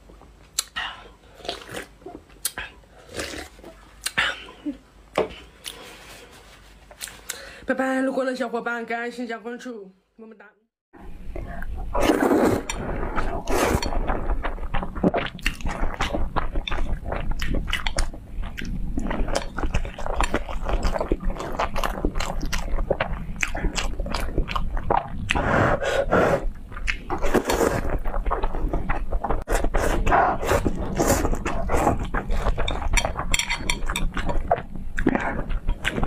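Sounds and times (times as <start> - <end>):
person slurping noodles: 3.0 - 3.7, 11.9 - 16.1, 25.0 - 26.5, 27.1 - 28.6, 29.4 - 33.1.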